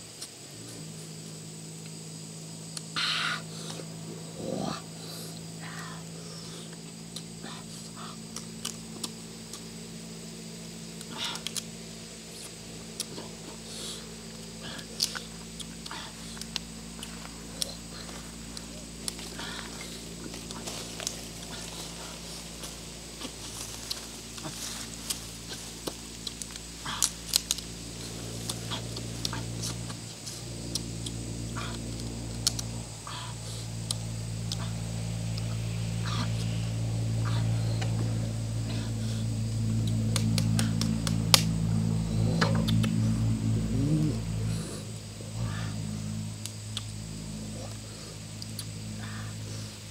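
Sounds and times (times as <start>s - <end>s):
low hum: 0.0s - 49.9s
sucking and chewing: 2.7s - 9.7s, 10.9s - 11.7s, 12.3s - 49.6s
snail shells clicking: 25.8s - 27.8s.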